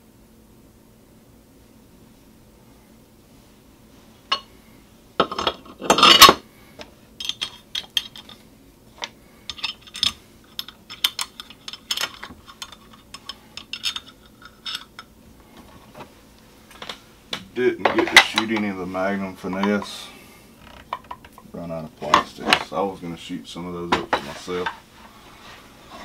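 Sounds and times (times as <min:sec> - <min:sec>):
metal mold clinks and knocks: 0:07.2 - 0:08.4.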